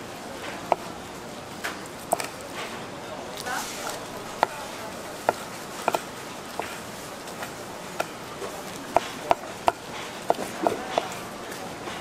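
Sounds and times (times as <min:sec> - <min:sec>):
steady background noise: 0:00.0 - 0:12.0
knife chopping on cutting board: 0:03.8 - 0:11.2.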